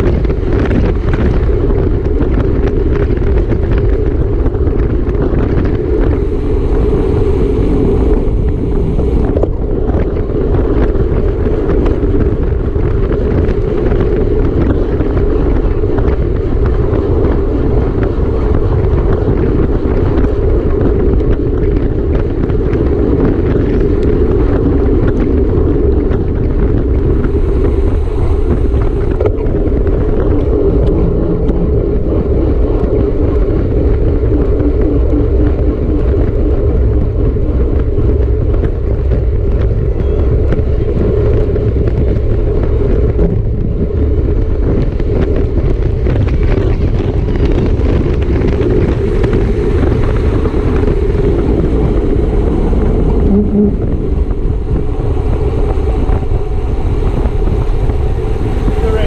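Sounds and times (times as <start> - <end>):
wind rushing over microphone: 0.0 - 59.0.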